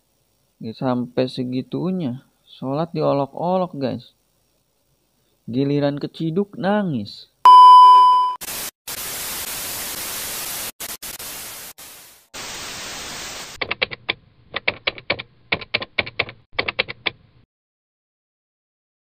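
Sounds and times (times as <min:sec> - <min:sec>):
tv static hiss: 0:08.4 - 0:13.6.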